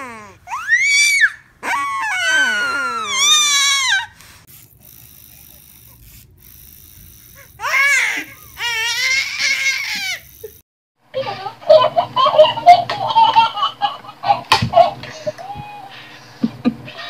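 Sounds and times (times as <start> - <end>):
baby wailing: 0.0 - 4.2, 7.6 - 10.3
baby laughing: 7.6 - 10.6, 11.2 - 15.8.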